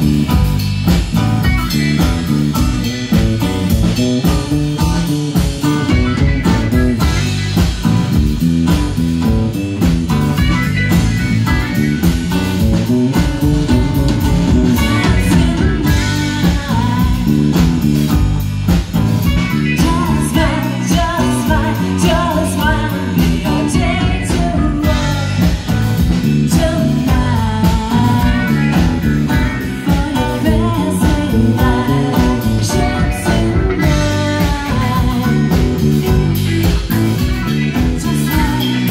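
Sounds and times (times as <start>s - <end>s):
live rock band playing: 0.0s - 38.9s
woman singing lead: 13.1s - 18.2s, 19.2s - 38.9s.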